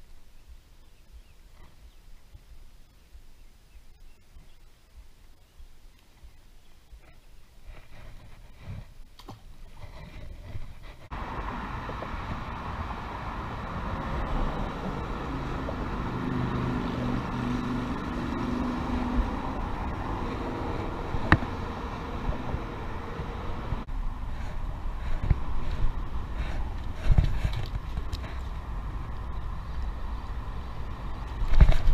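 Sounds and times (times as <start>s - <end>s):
road traffic rumble: 9.7s - 31.9s
passing engine hum: 10.9s - 31.9s.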